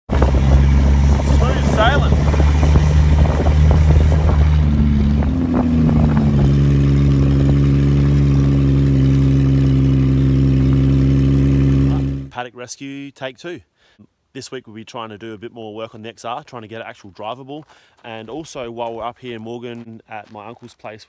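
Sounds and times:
vehicle engine driving along: 0.1 - 12.3.

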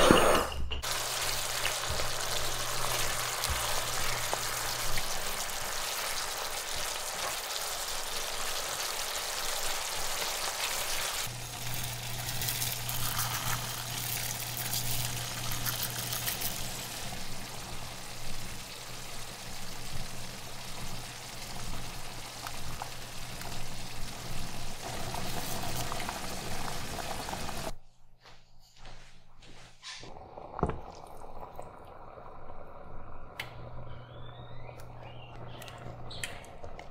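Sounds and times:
water running from tap: 0.8 - 27.7.

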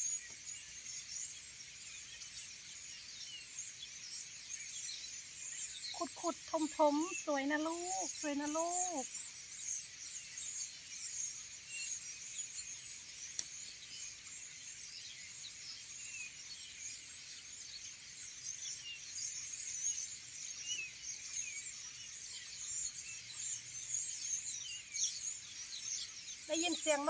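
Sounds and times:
small birds twittering: 0.0 - 27.0.

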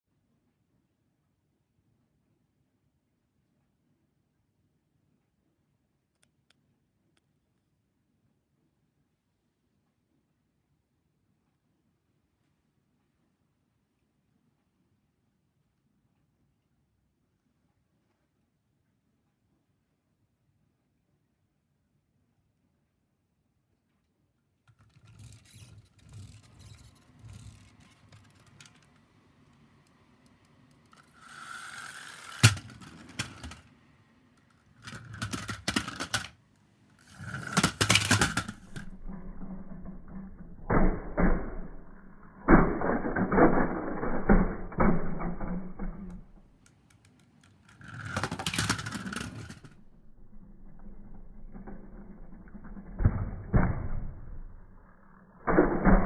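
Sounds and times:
toy car spring motor whirring: 24.9 - 28.8, 30.8 - 33.6, 34.8 - 36.3, 37.0 - 46.3, 47.1 - 52.8.

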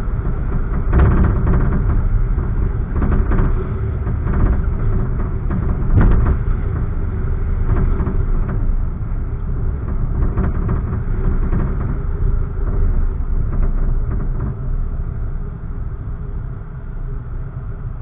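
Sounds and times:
car engine and tyres rumbling: 0.0 - 18.0.

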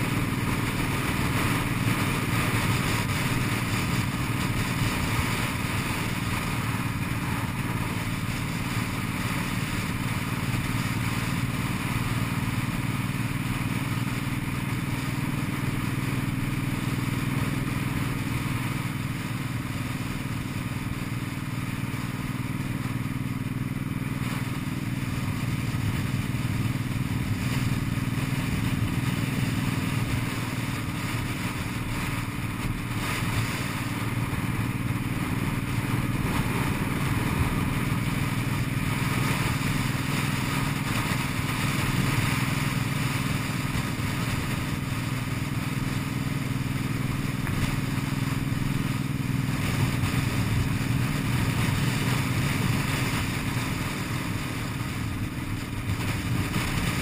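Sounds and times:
constant rushing noise: 0.0 - 57.0
motorcycle engine running: 0.0 - 57.0.

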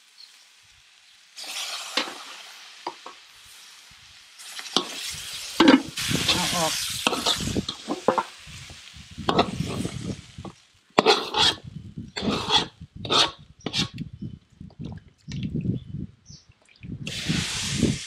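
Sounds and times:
food sizzling in wok: 0.0 - 13.9, 17.1 - 18.0
metal spatula scraping wok: 4.4 - 10.0, 11.0 - 14.0.

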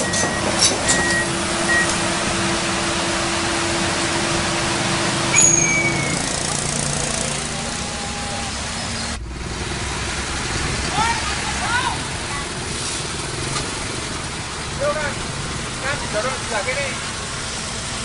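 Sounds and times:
steel tracks clattering on road: 0.0 - 7.8, 8.8 - 18.0
diesel engine running: 0.0 - 18.0
high squeal: 5.3 - 6.4.

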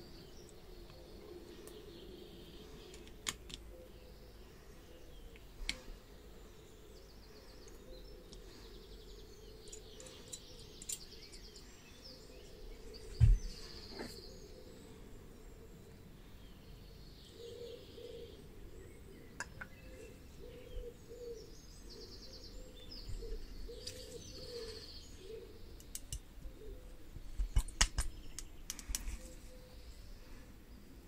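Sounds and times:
faint birds chirping: 0.0 - 31.0
metal parts clicking and knocking: 9.6 - 11.5.

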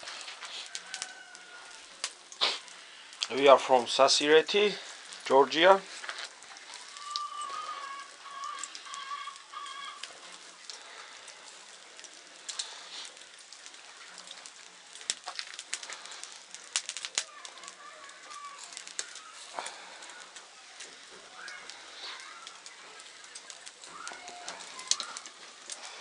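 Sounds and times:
bird calling: 6.8 - 10.1.

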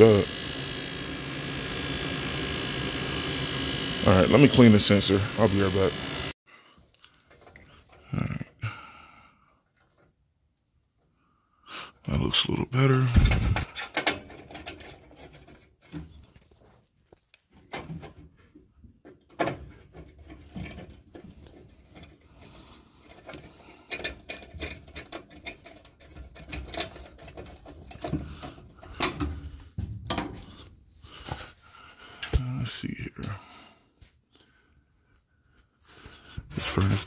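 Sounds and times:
clicks taps and scrapes on metal: 17.1 - 30.5.

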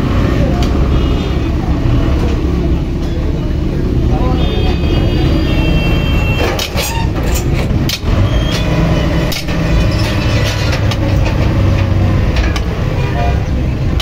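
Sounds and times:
forklift engine running: 0.0 - 14.0.

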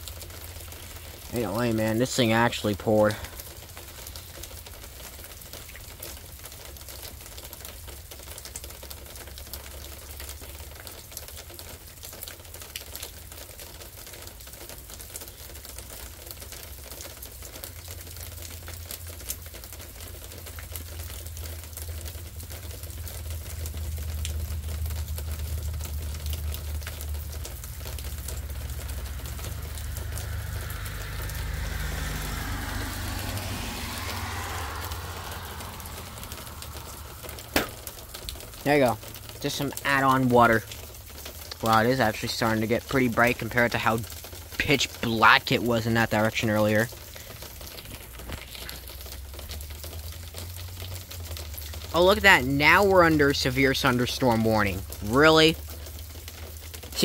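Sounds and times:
rain drips tapping: 0.0 - 57.0
low rumble: 22.6 - 39.3.

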